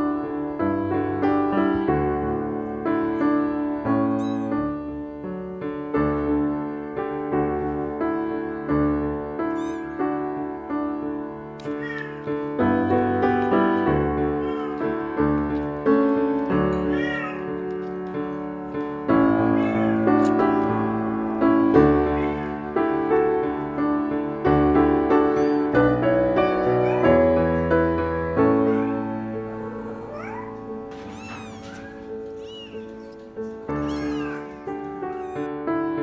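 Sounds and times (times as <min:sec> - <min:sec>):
background music with piano: 0:00.0 - 0:36.0
kittens meowing: 0:04.1 - 0:04.7, 0:09.5 - 0:10.0, 0:11.6 - 0:12.3, 0:14.2 - 0:15.0, 0:16.7 - 0:17.8, 0:19.3 - 0:20.8, 0:21.8 - 0:22.7, 0:25.1 - 0:35.5.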